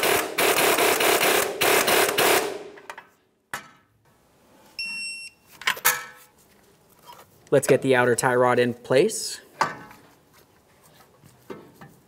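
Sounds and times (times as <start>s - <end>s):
short high beep: 4.8s - 5.4s.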